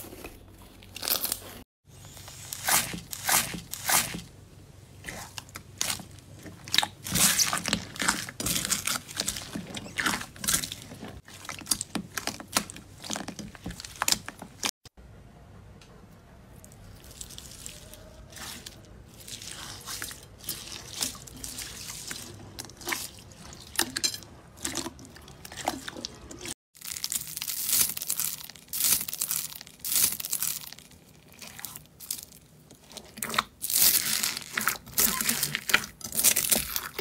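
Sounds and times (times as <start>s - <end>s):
crackles and crunches of beads: 0.0s - 4.1s, 5.1s - 14.8s, 16.7s - 24.0s, 24.9s - 37.0s
hands squishing slime: 5.0s - 14.7s, 16.9s - 23.9s.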